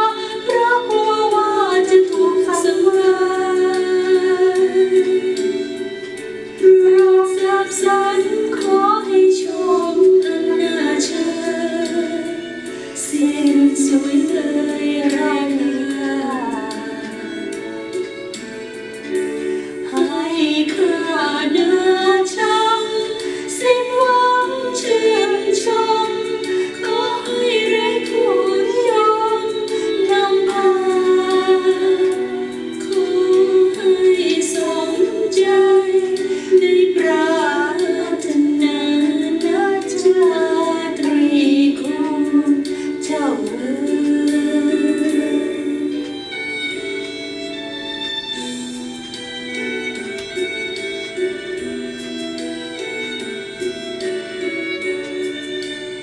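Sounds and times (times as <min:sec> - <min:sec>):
woman singing slowly: 0:00.0 - 0:05.6, 0:06.6 - 0:12.4, 0:13.1 - 0:17.2, 0:19.9 - 0:45.9
instrumental accompaniment: 0:00.0 - 0:56.0.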